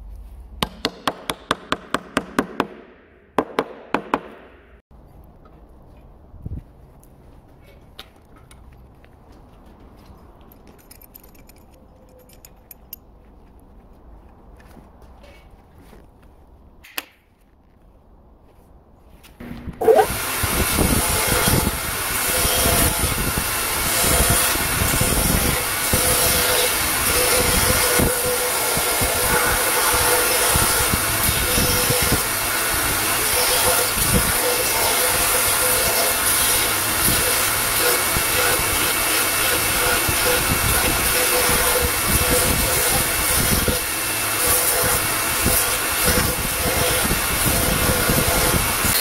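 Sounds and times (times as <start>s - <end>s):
belt grinder sanding wood: 19.8s - 49.0s.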